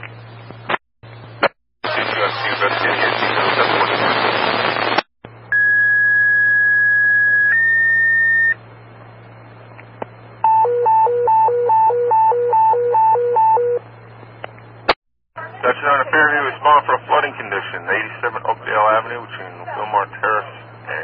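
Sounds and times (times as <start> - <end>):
two-tone paging tones: 10.4 - 13.8.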